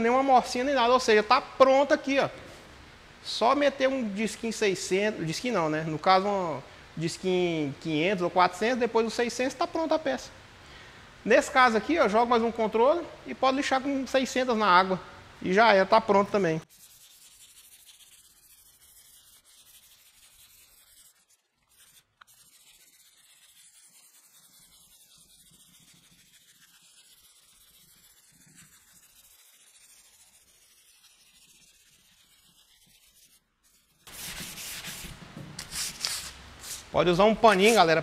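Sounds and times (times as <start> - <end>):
sandpaper scratching: 16.6 - 38.0.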